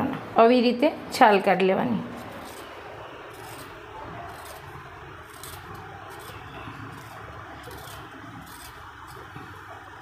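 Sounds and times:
peeler scraping root skin: 2.1 - 9.6.

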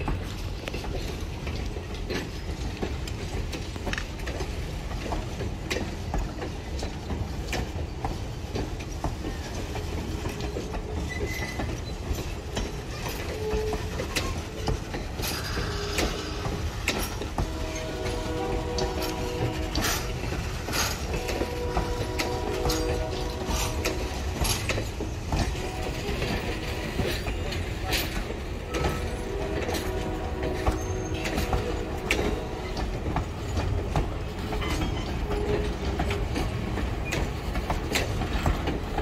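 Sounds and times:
train coaches rumbling past: 0.0 - 39.0
wheels clicking and clunking: 0.0 - 39.0
wheel squeals: 10.6 - 24.7, 30.6 - 33.7, 34.4 - 35.8.

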